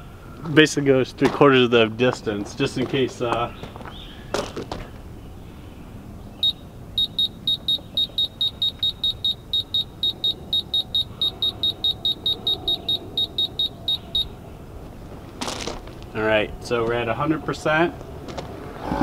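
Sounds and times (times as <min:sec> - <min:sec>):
short high electronic beeps: 0:06.4 - 0:14.3.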